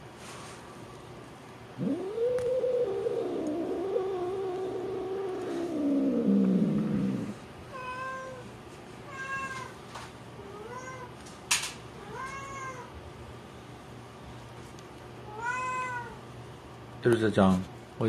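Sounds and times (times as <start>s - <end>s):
cat yowling and meowing: 1.8s - 9.7s, 10.4s - 11.1s, 12.0s - 12.9s, 15.3s - 16.2s.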